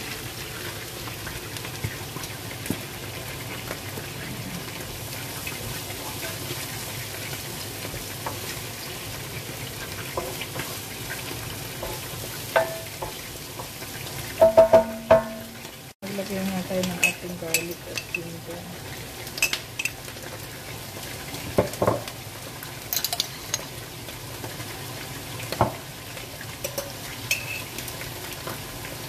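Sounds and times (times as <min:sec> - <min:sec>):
onions sizzling in a pan: 0:00.0 - 0:29.0
wooden spatula scraping and tapping pan: 0:10.0 - 0:15.6.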